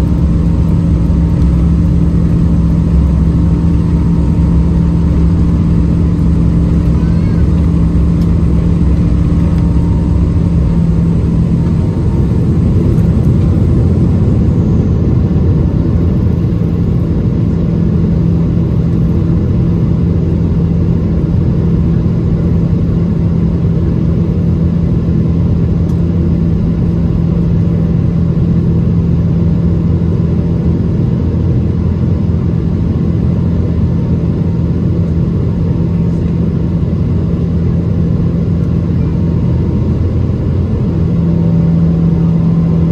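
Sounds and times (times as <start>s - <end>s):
jet engines droning in cabin: 0.0s - 42.9s.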